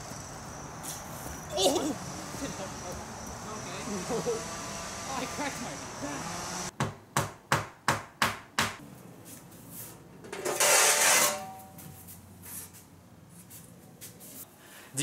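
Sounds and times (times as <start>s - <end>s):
sharp knocks: 6.8s - 8.8s.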